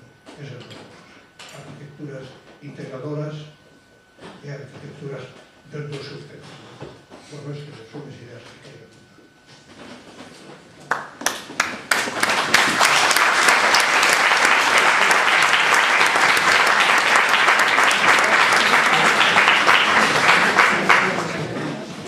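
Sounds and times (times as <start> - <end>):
audience applauding: 10.9 - 22.0.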